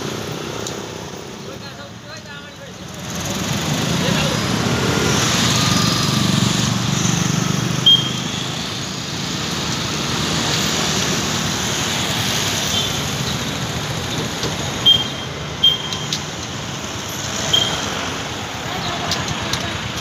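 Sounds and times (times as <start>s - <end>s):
motorcycles and scooters passing: 2.3s - 20.0s
short horn beeps: 7.8s - 8.5s, 14.8s - 16.1s, 17.5s - 17.9s.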